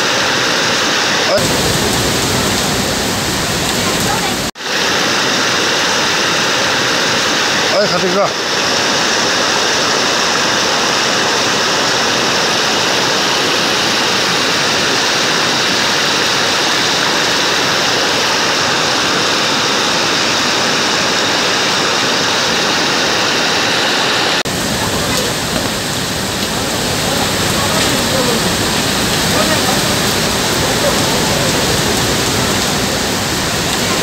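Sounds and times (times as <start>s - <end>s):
floodwater rushing: 0.0s - 34.0s
running water with deep rumble: 0.0s - 34.0s.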